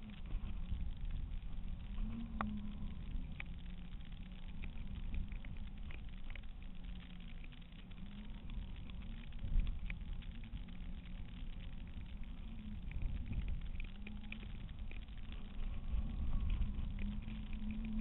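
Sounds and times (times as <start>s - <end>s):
light ticks: 0.0s - 18.0s
wind buffeting a camera: 8.6s - 18.0s.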